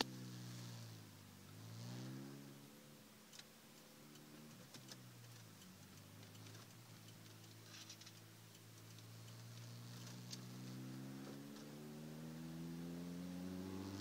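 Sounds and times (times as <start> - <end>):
car engine running faintly: 0.0 - 14.0
faint light clicks: 3.3 - 10.5.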